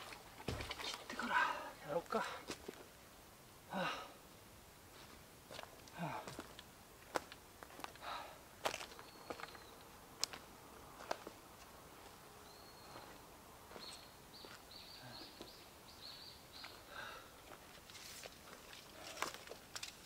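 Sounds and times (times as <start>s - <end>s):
footsteps on dry twigs: 8.6s - 12.2s, 12.9s - 14.6s, 17.4s - 20.0s
bird chirping: 8.8s - 9.9s, 12.4s - 17.0s
twigs snapping: 17.9s - 20.0s.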